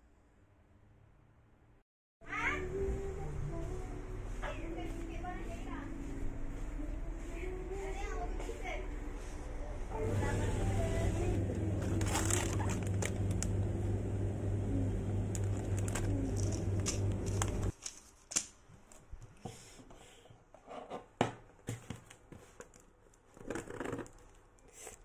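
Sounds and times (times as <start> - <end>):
steady low hum: 2.6 - 17.7.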